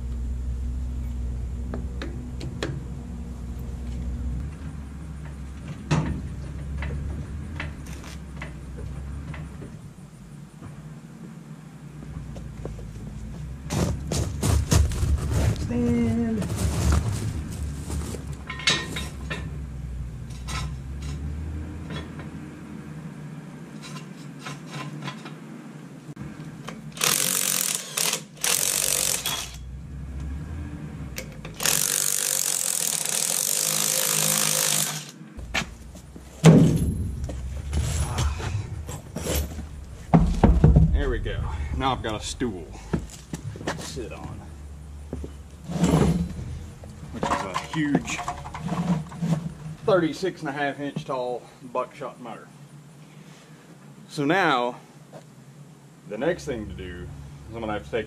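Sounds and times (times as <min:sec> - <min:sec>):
clanks and knocks of tools: 0:04.4 - 0:09.8, 0:18.2 - 0:19.6, 0:20.2 - 0:22.4, 0:23.8 - 0:25.4, 0:31.1 - 0:35.8, 0:47.1 - 0:49.8
tire falling with heavy thud: 0:04.5 - 0:10.8, 0:12.1 - 0:21.1, 0:35.4 - 0:44.4
impact wrench rattling: 0:26.9 - 0:29.6, 0:31.4 - 0:35.8.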